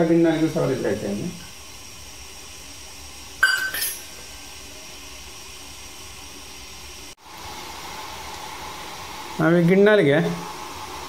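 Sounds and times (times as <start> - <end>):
steady hiss: 0.0 - 11.0
metal cups clinking: 3.4 - 4.2.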